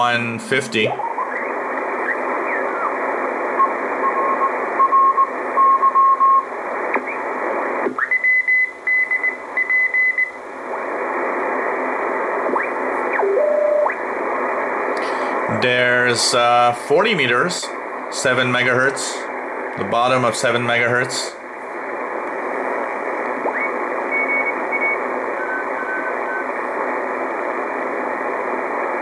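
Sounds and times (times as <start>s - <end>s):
radio band hiss: 0.0s - 29.0s
morse code tones: 13.2s - 13.9s.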